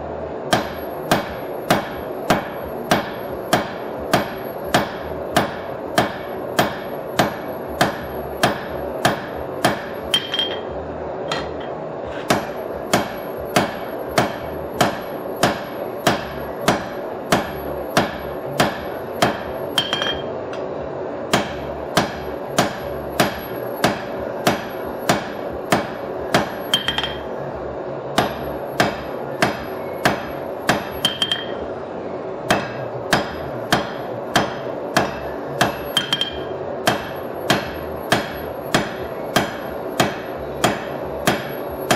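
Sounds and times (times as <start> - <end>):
hammer striking steel on anvil: 0.5 - 20.7, 21.3 - 27.4, 28.2 - 31.7, 32.5 - 41.9
high metallic ring: 10.1 - 10.7, 19.6 - 20.4, 26.6 - 27.3, 31.0 - 31.6, 35.8 - 36.6.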